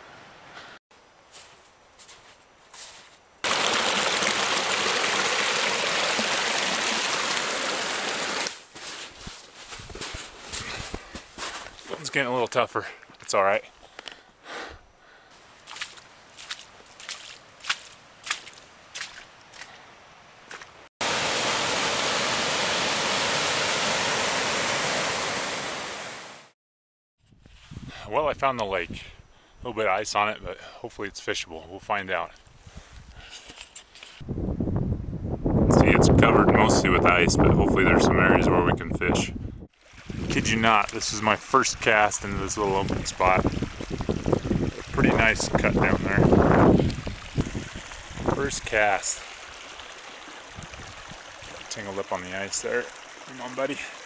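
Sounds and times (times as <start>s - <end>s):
stream rushing over rocks: 3.4s - 8.6s, 21.0s - 26.5s, 39.8s - 54.0s.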